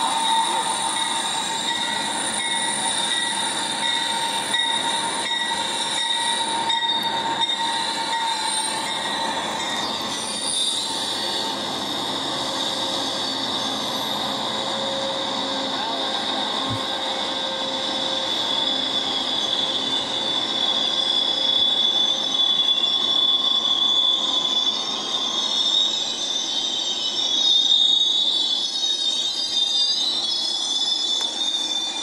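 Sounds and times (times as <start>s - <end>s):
higher wavering squeals: 0.0s - 32.0s
train wheels squealing on rail: 0.0s - 32.0s.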